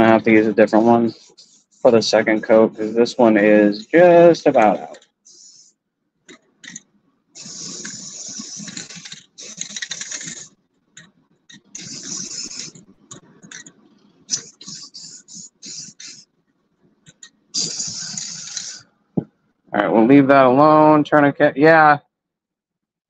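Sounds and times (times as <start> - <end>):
aerosol spray can hissing: 5.3 - 5.7, 7.4 - 10.5, 11.8 - 12.8, 14.3 - 16.2, 17.6 - 18.8.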